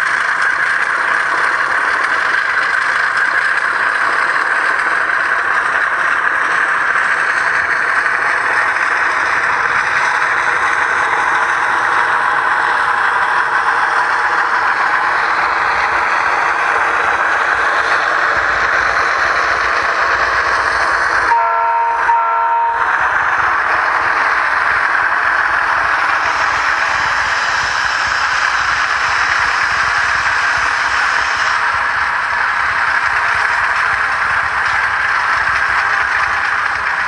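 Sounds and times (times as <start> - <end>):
model train clattering rumble: 0.0 - 37.0
train horn blasts: 21.3 - 23.0.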